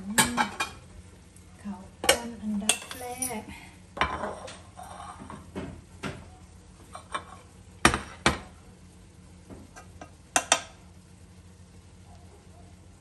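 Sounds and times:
spoon knocking against pot: 9.5 - 10.8.

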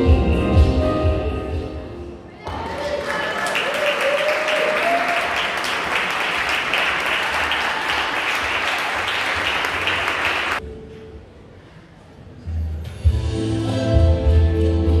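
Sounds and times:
audience applause: 2.4 - 10.6.

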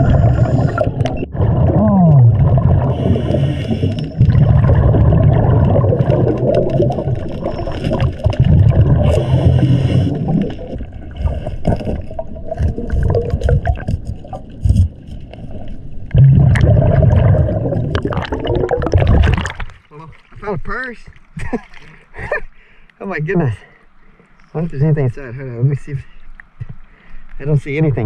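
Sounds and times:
exhaled bubbles underwater: 0.0 - 19.8.

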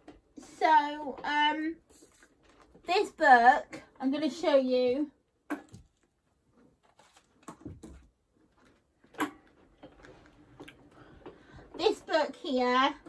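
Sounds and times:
book rustling: 1.9 - 2.9, 5.9 - 11.1.

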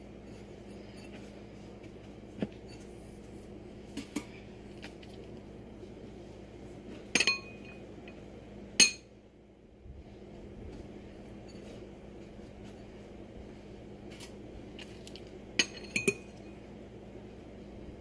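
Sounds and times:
spoon clinking glass bowl: 15.6 - 16.4.

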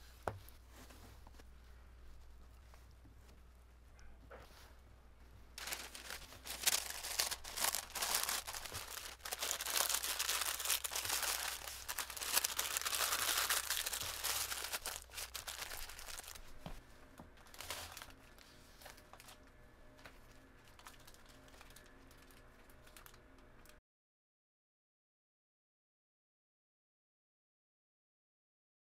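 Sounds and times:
faint handling sounds: 0.0 - 23.8
paper crinkling and rustling: 5.6 - 16.8, 17.4 - 19.4, 20.1 - 23.7.

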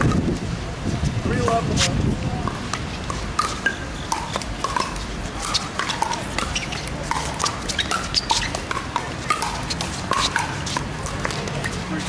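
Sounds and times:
paddles hitting plastic ball: 2.5 - 11.8.

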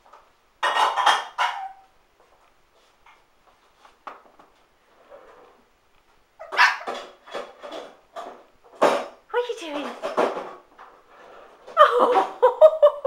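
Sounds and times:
puppy barking: 6.4 - 7.0.

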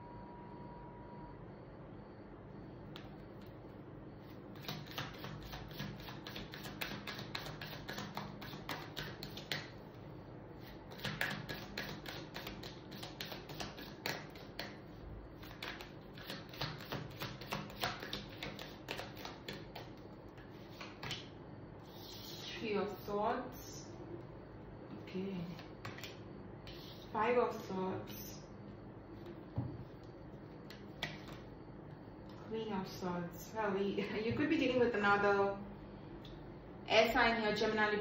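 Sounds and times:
cards being shuffled: 15.5 - 19.8.

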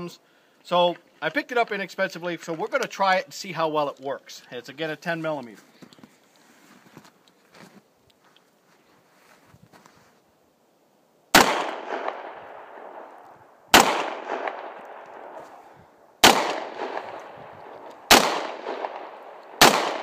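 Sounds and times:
pistol shots with echo: 11.3 - 13.1, 13.7 - 15.4, 16.2 - 20.0.

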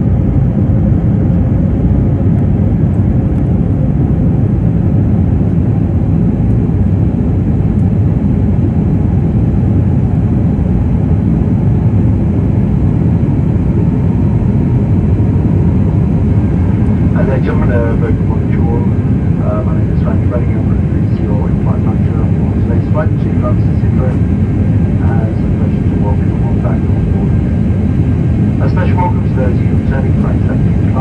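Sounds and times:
jet cabin engine drone: 0.0 - 31.0.

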